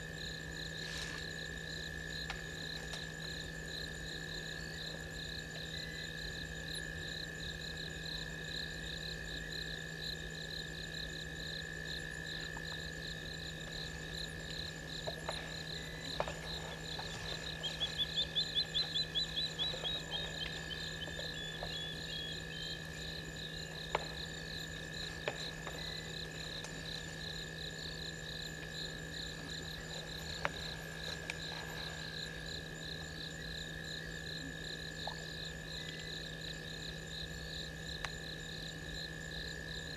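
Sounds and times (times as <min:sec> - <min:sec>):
low hum: 0:11.1 - 0:36.2
frogs trilling: 0:11.1 - 0:38.3
insects shrill tone: 0:15.6 - 0:25.2.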